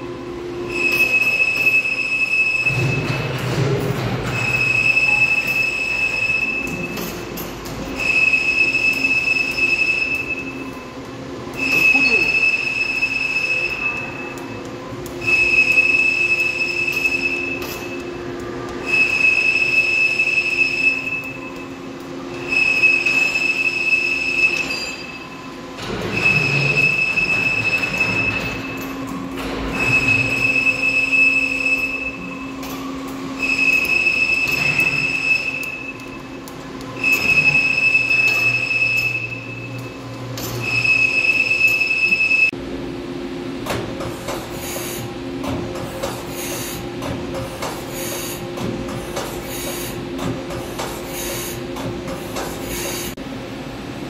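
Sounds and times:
steady machine hum: 0.0 - 54.0
high-pitched warning beeps: 0.7 - 3.3, 4.3 - 7.1, 8.0 - 10.9, 11.5 - 18.1, 18.8 - 25.4, 26.1 - 29.0, 29.7 - 42.5.

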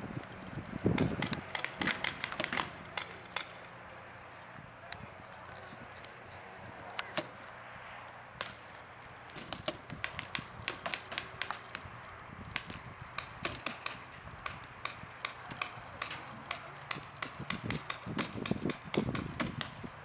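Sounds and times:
paintball markers popping: 0.9 - 3.6, 9.3 - 11.9, 12.5 - 19.8.

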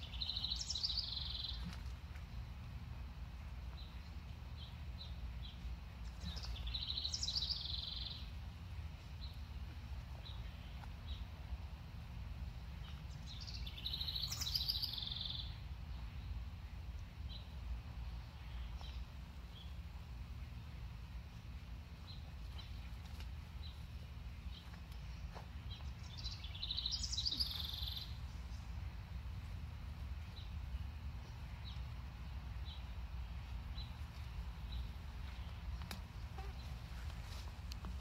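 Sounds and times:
low background rumble: 0.0 - 38.0
faint bird chirps: 13.4 - 15.6, 25.9 - 28.2
songbird trilling: 13.4 - 15.6, 26.0 - 28.2.

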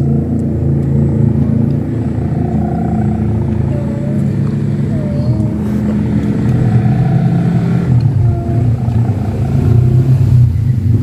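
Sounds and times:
engine droning: 0.0 - 11.0.

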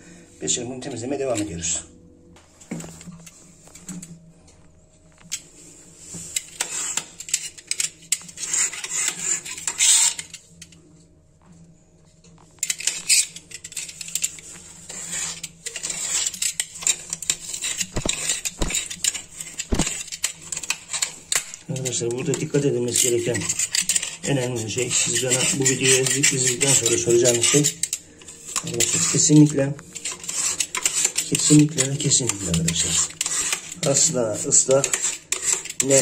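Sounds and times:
knife blade scraping ceramic: 6.3 - 10.8, 12.6 - 36.0.

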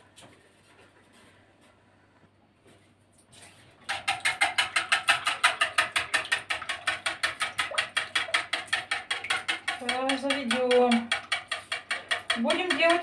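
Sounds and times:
whisk clattering in metal pot: 3.9 - 13.0.

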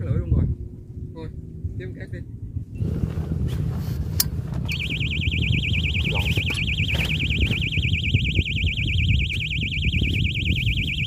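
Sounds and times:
wind rumble on microphone: 0.0 - 11.0
warbling bite alarm tone: 4.7 - 11.0.

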